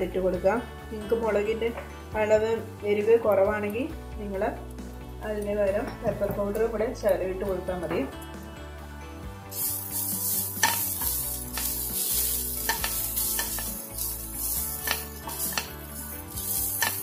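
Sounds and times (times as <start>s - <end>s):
vegetables sizzling in a frying pan: 9.5s - 17.0s
spatula scraping and tapping pan: 9.6s - 17.0s.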